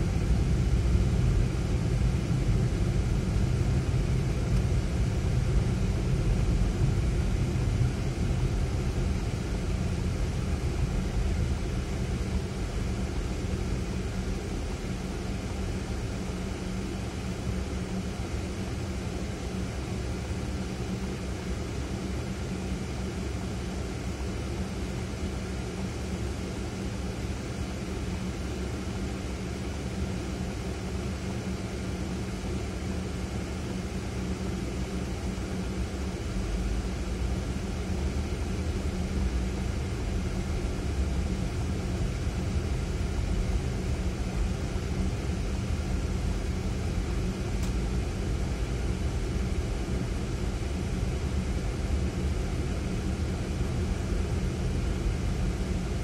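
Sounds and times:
faint hum: 0.0 - 56.0.

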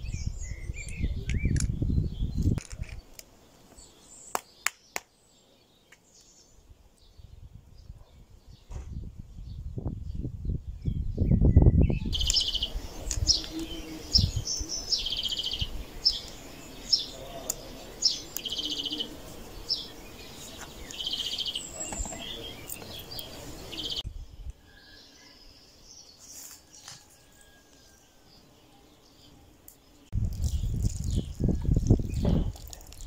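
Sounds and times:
songbirds chirping and trilling: 0.0 - 33.0
low rumble on microphone: 30.1 - 32.8.

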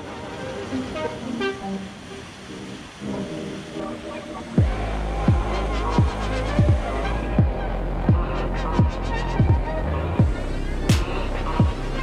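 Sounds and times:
electronic music: 0.0 - 12.0
booming kick drum: 4.6 - 11.8
steady bass: 4.6 - 12.0.

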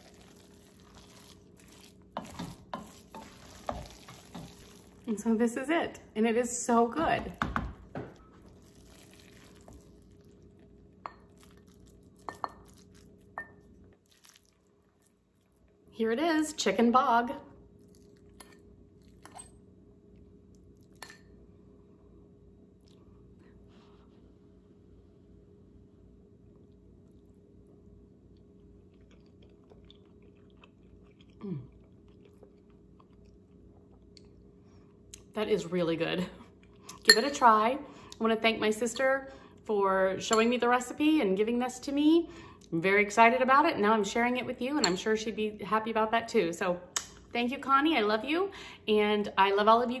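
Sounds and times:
person chewing food: 0.0 - 5.1, 8.2 - 15.7, 17.8 - 19.2, 26.5 - 35.3.

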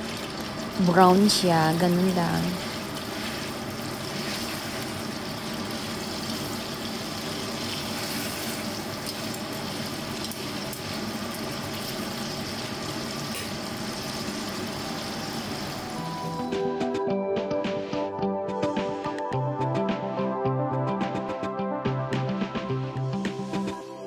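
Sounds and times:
chicken sizzling in oil: 0.0 - 16.5.

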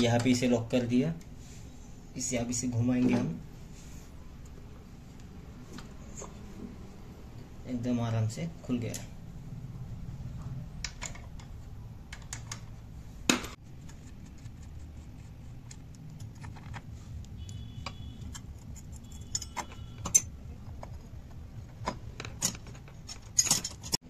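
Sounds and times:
metal tools clicking and clinking: 18.3 - 21.1, 21.8 - 24.0.

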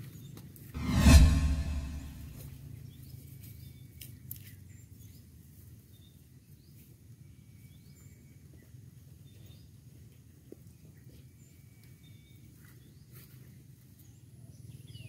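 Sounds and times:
low steady rumble: 0.8 - 2.4.

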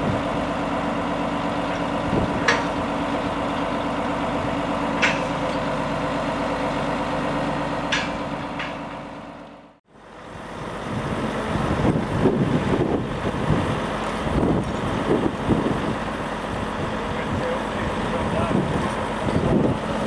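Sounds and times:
diesel engine idling: 0.0 - 20.0
wind buffeting microphone: 1.9 - 2.8, 10.6 - 20.0.

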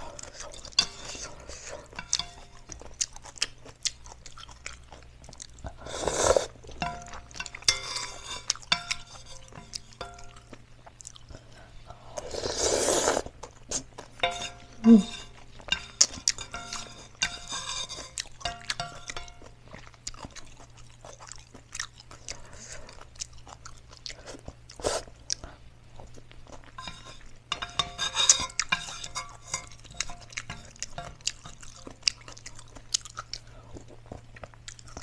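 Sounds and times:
chewing: 0.0 - 35.0
utensils clinking on metal pan: 0.6 - 2.7, 6.8 - 10.5, 14.2 - 19.5, 26.8 - 32.0
noodle slurping: 5.8 - 6.6, 12.2 - 13.8.

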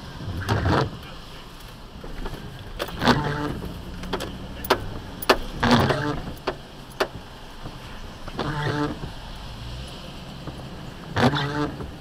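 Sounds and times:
car cabin hum: 0.0 - 9.4.

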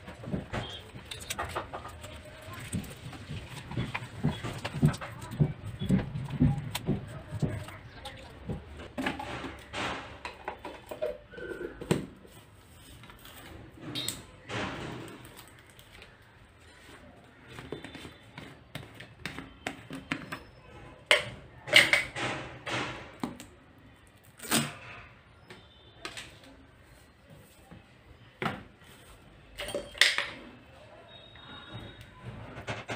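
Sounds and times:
plastic tubs clicking and knocking: 0.0 - 13.2, 14.0 - 23.6.

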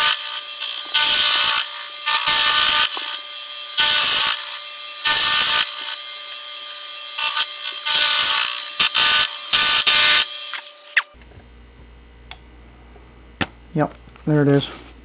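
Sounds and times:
cutter hissing on metal: 0.0 - 11.2.

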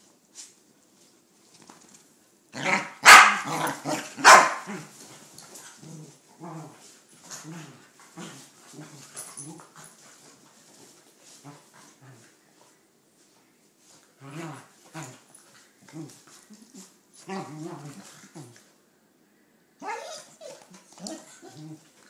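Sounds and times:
dogs barking: 2.7 - 3.6, 4.2 - 4.7
dogs growling: 14.2 - 18.7, 20.0 - 22.0.

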